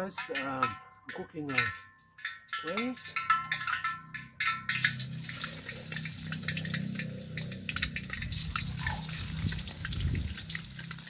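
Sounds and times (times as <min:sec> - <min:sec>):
deep-frying sizzling and crackling: 0:02.2 - 0:11.0.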